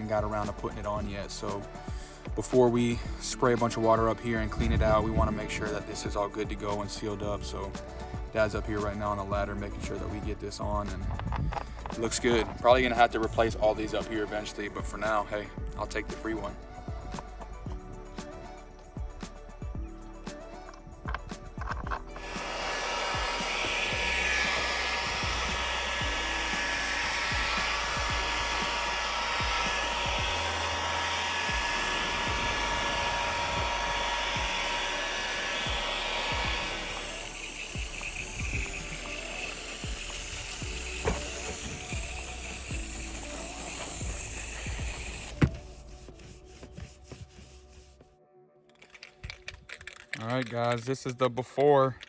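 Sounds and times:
background music with bass: 0.0s - 48.2s
leaf blower running: 22.1s - 45.4s.

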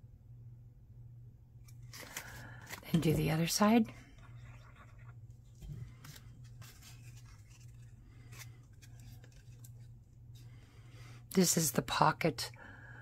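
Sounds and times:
steady low hum: 0.0s - 13.0s
paper rustling: 1.7s - 3.3s, 4.0s - 10.0s.

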